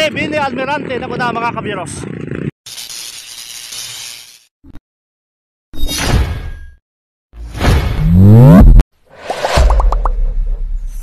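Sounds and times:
whoosh with rising swoop: 7.9s - 10.6s.

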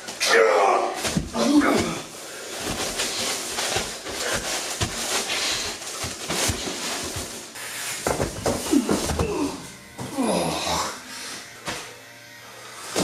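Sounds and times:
men grunting: 0.2s - 2.2s, 8.6s - 11.1s
scuffling and thuds on mats: 1.0s - 10.1s.

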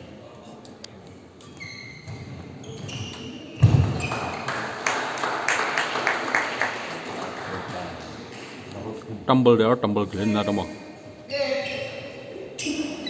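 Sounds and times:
shoes squeaking on wooden court: 1.2s - 4.5s, 11.4s - 13.0s
thud: 3.6s - 4.1s
spectators cheering and clapping: 4.0s - 7.9s.

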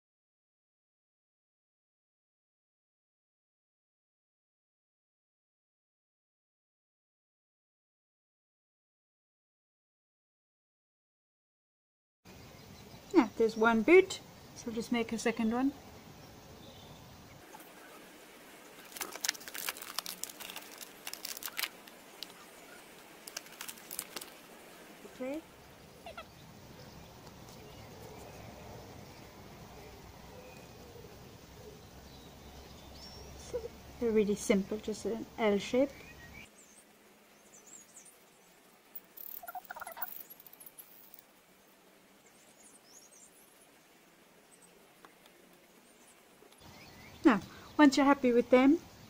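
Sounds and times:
rapidly repeated lower bird calls: 12.3s - 19.0s, 21.3s - 23.5s, 24.3s - 28.5s, 35.9s - 41.2s
thin high bird chirps: 16.6s - 28.4s, 35.7s - 41.3s
plastic wrapper crinkling: 18.8s - 24.6s.

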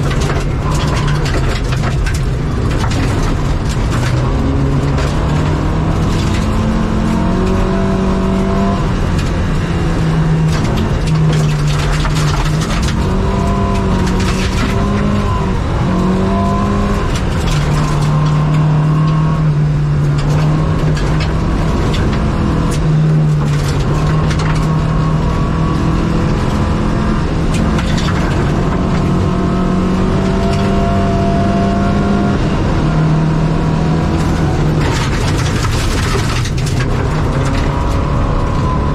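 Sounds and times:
rally car engine at high revs: 0.0s - 38.9s
tyres on gravel: 10.4s - 26.6s, 34.2s - 38.7s.

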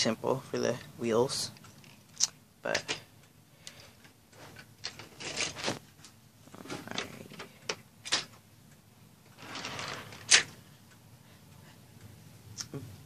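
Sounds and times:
rustling handling noise: 4.3s - 8.2s.

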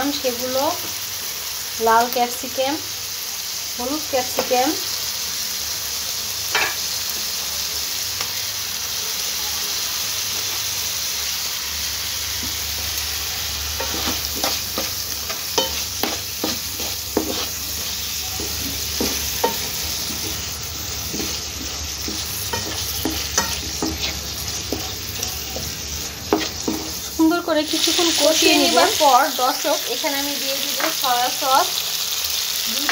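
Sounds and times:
vegetables sizzling in oil: 0.0s - 32.9s
spatula scraping pan: 13.7s - 27.2s.

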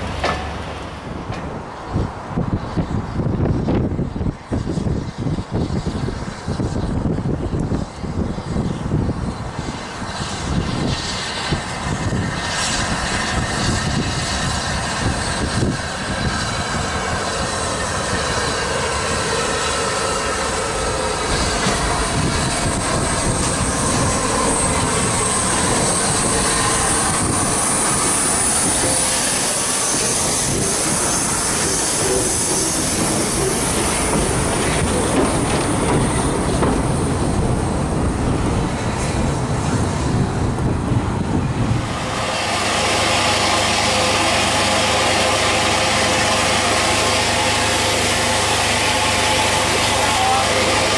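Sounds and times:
wheels clattering over rail joints: 0.0s - 2.0s, 16.8s - 39.3s
train wheels squealing: 8.0s - 37.2s.

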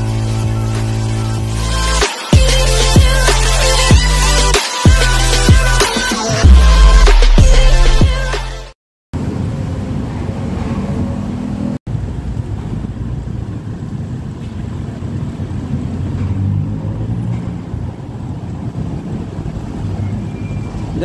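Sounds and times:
low outdoor rumble: 9.2s - 21.0s.

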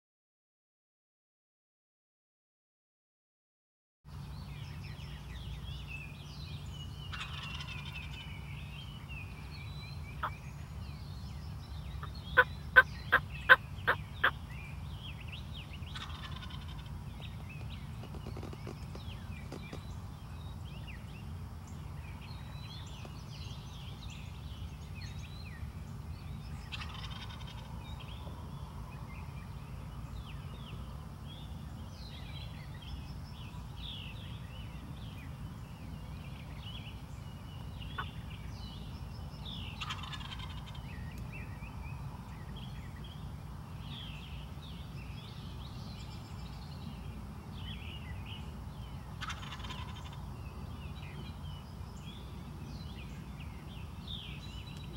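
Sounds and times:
small birds chirping: 4.1s - 54.9s
turkey gobbling: 7.1s - 8.0s, 16.0s - 16.8s, 26.8s - 27.6s, 39.8s - 40.7s, 49.2s - 50.2s.

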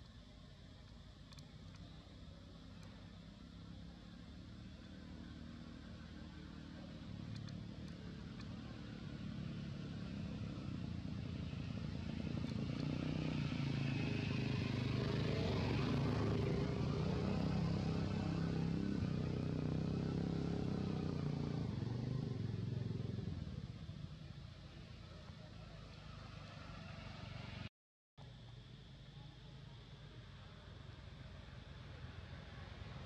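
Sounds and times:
vehicle engine passing: 4.6s - 27.7s.

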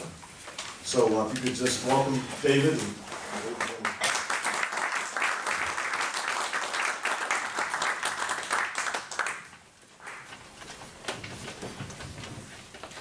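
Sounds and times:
audience applauding: 3.2s - 10.4s.

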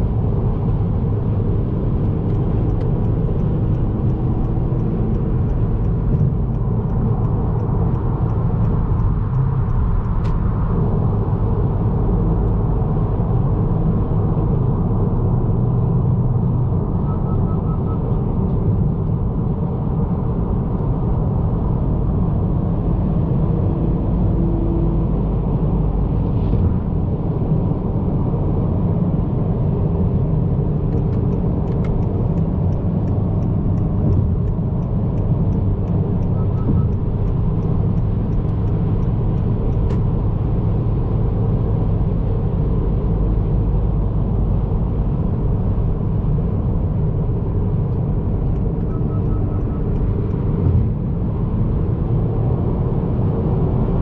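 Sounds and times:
car road and engine noise: 0.0s - 54.0s
faint regular ticking: 2.3s - 10.2s, 31.0s - 39.9s.

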